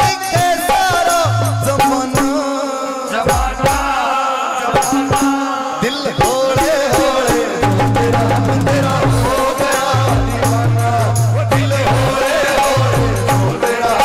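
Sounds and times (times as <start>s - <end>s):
hand percussion: 0.0s - 2.6s, 4.8s - 14.0s
man singing: 0.0s - 14.0s
keyboard: 4.8s - 14.0s.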